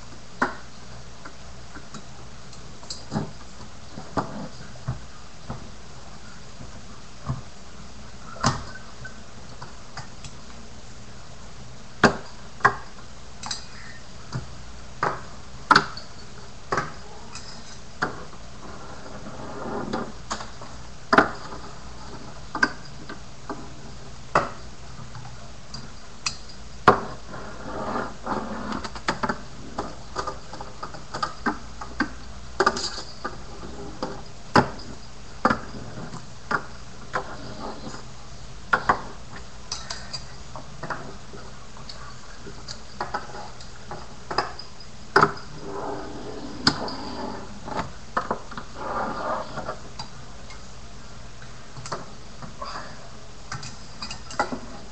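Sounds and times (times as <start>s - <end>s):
small wheels rolling and scraping: 16.7s - 23.7s, 26.9s - 38.1s, 45.2s - 50.0s.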